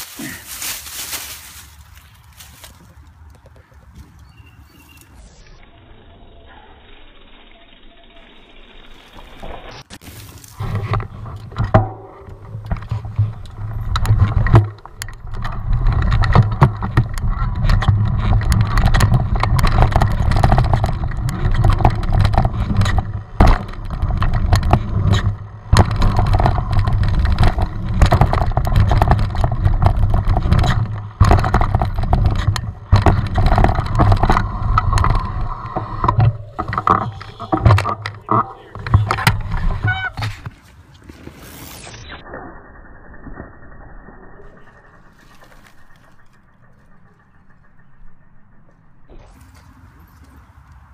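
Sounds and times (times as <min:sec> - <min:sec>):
bike rattling over bumps: 0:07.1 - 0:42.1, 0:42.8 - 0:50.2
tyres and wind rumble: 0:09.3 - 0:42.2.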